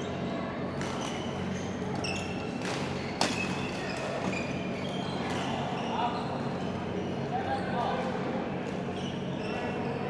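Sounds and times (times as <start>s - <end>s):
shoes squeaking on court: 0.0s - 7.2s, 8.6s - 10.0s
rackets hitting shuttlecock: 2.0s - 4.4s.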